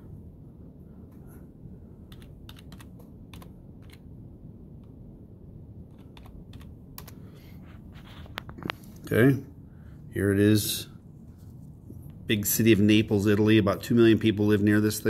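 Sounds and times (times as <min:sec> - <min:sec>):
steady low hum: 0:00.0 - 0:15.0
keyboard key clicks: 0:02.1 - 0:04.0, 0:05.9 - 0:07.2.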